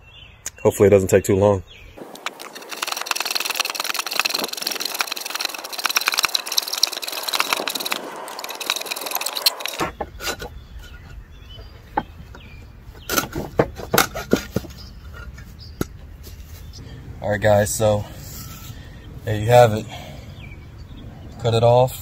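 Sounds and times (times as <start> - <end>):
hacksaw cutting wood: 2.0 - 10.4.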